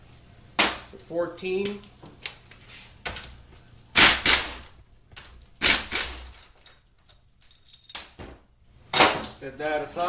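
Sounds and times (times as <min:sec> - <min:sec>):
air impact wrench hammering: 0:04.0 - 0:04.7, 0:05.6 - 0:06.4.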